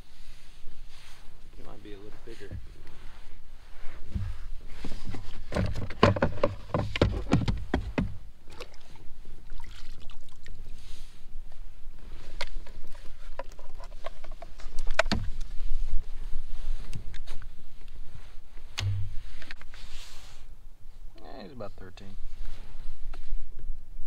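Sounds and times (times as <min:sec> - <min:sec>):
fishing gear knocking and rattling: 0:05.0 - 0:08.2, 0:12.4 - 0:15.6.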